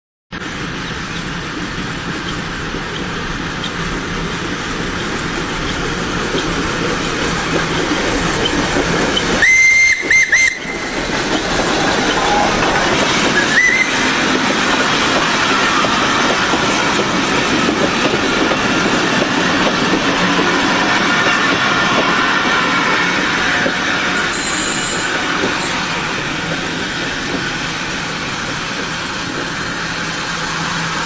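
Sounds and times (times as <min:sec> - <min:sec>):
steam locomotive rushing: 0:00.4 - 0:31.0
steam whistle toots: 0:09.3 - 0:14.2, 0:21.2 - 0:25.7.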